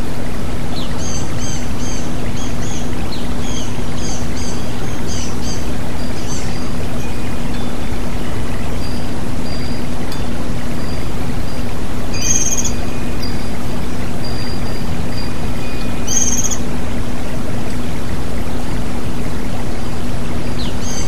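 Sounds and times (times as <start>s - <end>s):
bird chirping: 0.7s - 16.7s, 20.4s - 21.0s.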